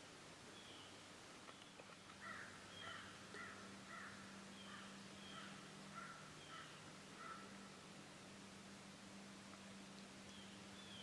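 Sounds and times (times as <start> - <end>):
bird calling: 0.5 - 7.7
steady low hum: 2.3 - 11.0.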